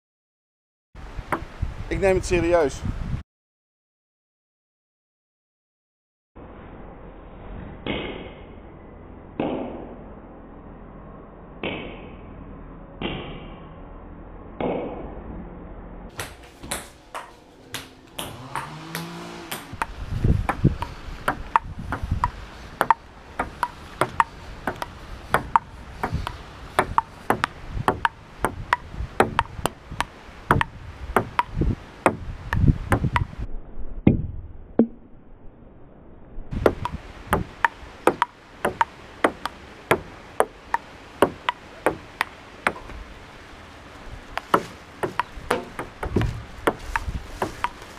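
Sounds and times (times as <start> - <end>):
table tennis ball clicking: 16.7 - 19.9, 21.3 - 29.8.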